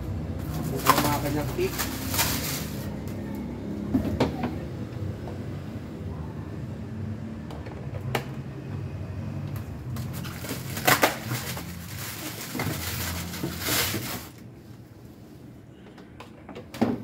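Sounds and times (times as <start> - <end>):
plastic packaging crinkling: 0.5 - 2.9, 10.0 - 14.5.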